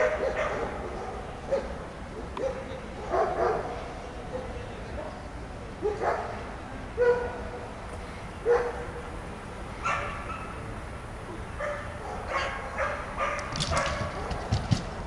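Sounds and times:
dog barking: 0:00.0 - 0:05.2, 0:05.8 - 0:06.4, 0:07.0 - 0:07.4, 0:08.4 - 0:09.0, 0:09.8 - 0:10.6, 0:11.6 - 0:14.6.

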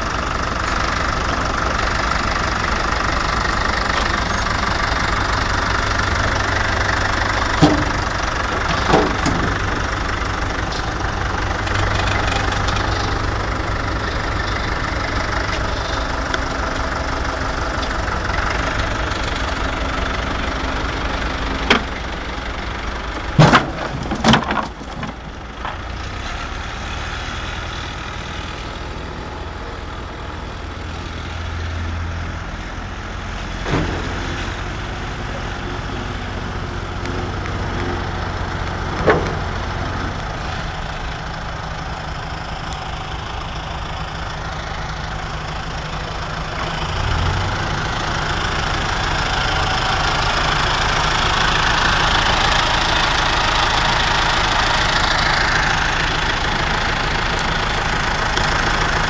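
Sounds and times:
tractor diesel engine idling: 0:00.0 - 0:59.0
wooden pallets dropping and clattering: 0:07.6 - 0:09.7, 0:23.2 - 0:25.8.

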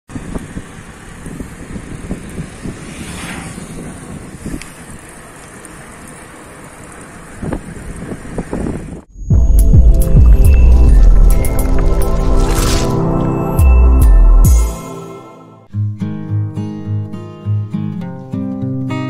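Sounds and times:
wind buffeting microphone: 0:00.1 - 0:05.4, 0:07.0 - 0:09.1
bicycle tyres rumbling on tarmac: 0:00.1 - 0:09.1.

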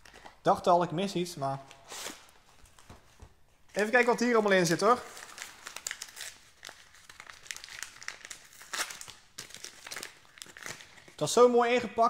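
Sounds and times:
packaging crinkling: 0:03.8 - 0:11.2.

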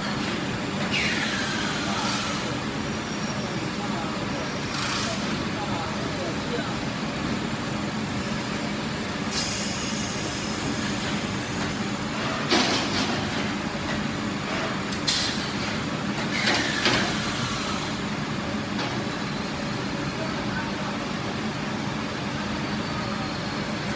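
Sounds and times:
factory machinery noise: 0:00.0 - 0:23.9
short hissing bursts: 0:09.3 - 0:10.6.

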